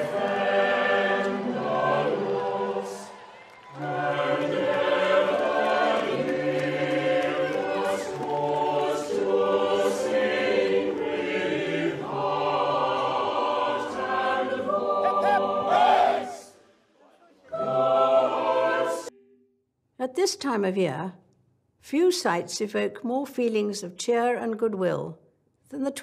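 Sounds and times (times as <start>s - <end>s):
choir singing in harmony: 0.0s - 19.2s.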